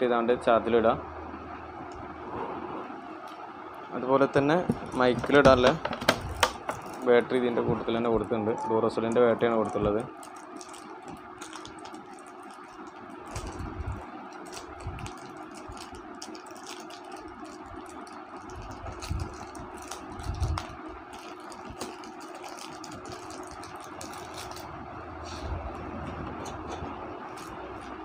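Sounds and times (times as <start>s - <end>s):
background hum: 0.0s - 28.0s
batteries and packaging clattering: 4.7s - 7.3s, 9.0s - 24.7s, 26.4s - 28.0s.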